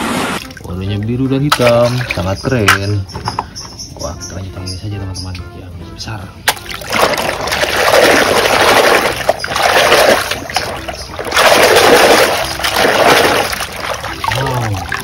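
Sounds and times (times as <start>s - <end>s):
water splashing: 0.0s - 2.8s, 6.4s - 15.0s
hand scrubbing toy in water: 6.6s - 15.0s.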